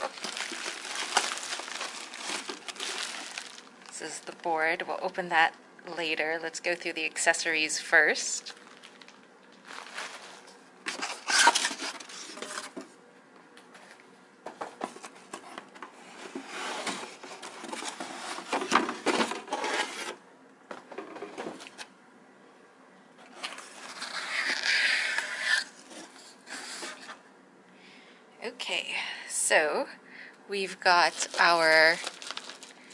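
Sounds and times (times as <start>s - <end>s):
cardboard box scraping and rustling: 16.2s - 20.2s.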